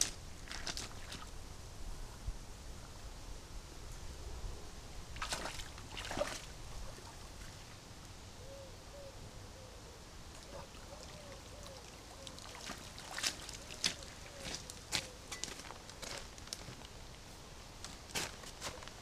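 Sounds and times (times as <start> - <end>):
water splashing: 5.2 - 7.8, 10.4 - 14.6
bird calling: 8.4 - 12.7, 13.4 - 15.4.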